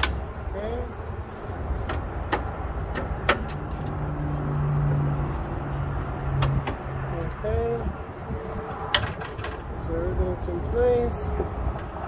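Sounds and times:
low engine hum: 0:00.0 - 0:12.0
sharp metallic clicks: 0:02.3 - 0:04.0.

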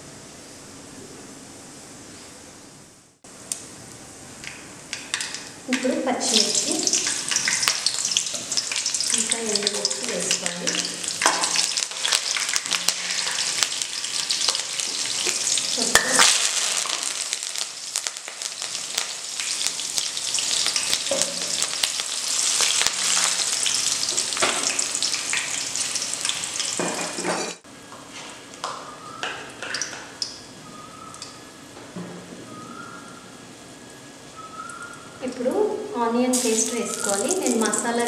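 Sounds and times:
hot oil sizzling: 0:04.2 - 0:27.6, 0:36.3 - 0:38.0.

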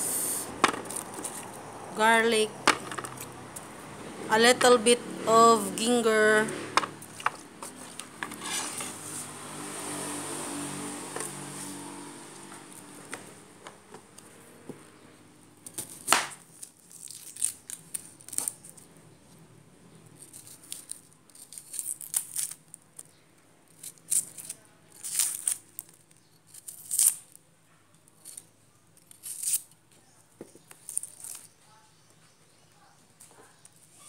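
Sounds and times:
vegetables snapping by hand: 0:15.6 - 0:18.7.

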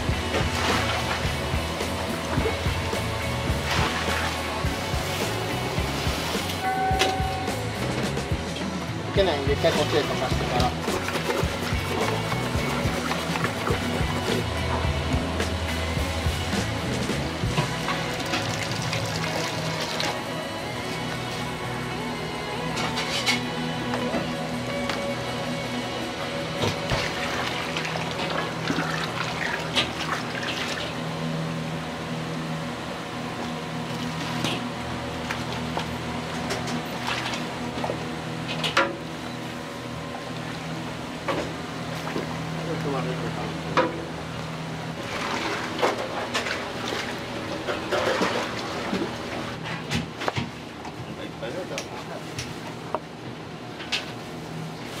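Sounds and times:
broth bubbling at a rolling boil: 0:17.4 - 0:20.2, 0:26.9 - 0:31.0
broth sloshing in a pot: 0:26.9 - 0:31.0, 0:45.0 - 0:49.4.

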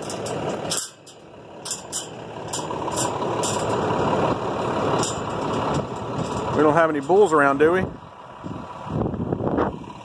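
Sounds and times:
wind buffeting microphone: 0:07.8 - 0:10.0.

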